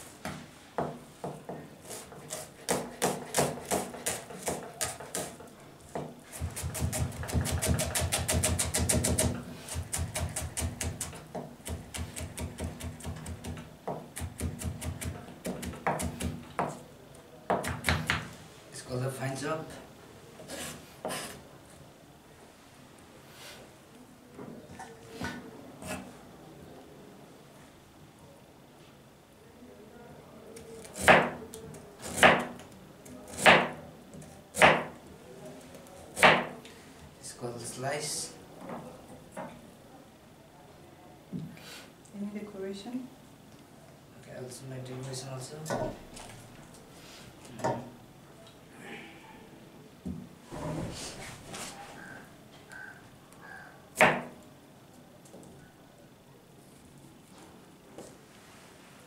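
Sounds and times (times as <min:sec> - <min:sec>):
knife chopping on plastic board: 0:02.2 - 0:05.4, 0:06.0 - 0:16.8, 0:30.9 - 0:31.4, 0:32.1 - 0:32.6, 0:34.6 - 0:35.0, 0:36.2 - 0:36.6, 0:54.0 - 0:54.3.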